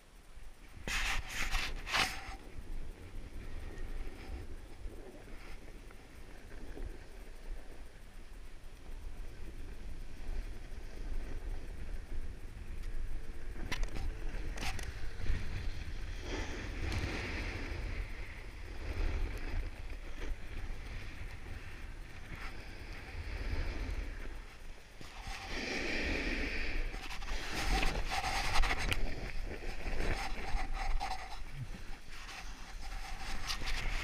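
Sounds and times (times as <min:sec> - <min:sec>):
wind buffeting microphone: 0:00.8 - 0:34.0
snow hissing under skis: 0:14.1 - 0:34.0.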